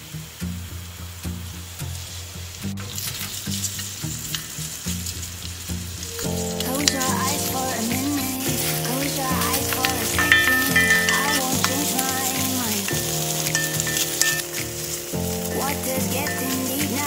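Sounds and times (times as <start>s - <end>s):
meat sizzling in hot oil: 0.8s - 17.0s
simple background music: 4.1s - 17.0s.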